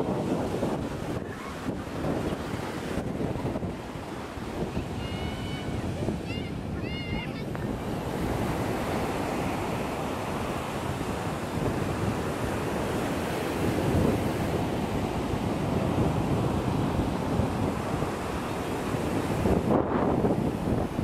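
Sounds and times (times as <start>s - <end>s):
ocean surf breaking: 0.0s - 21.0s
wind buffeting microphone: 0.0s - 21.0s.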